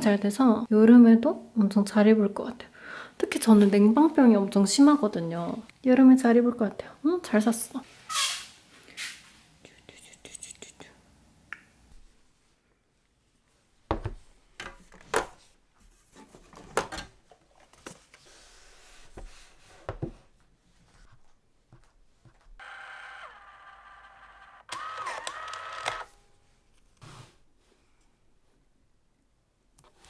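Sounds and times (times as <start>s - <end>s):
label printer whirring: 22.6s - 26.1s.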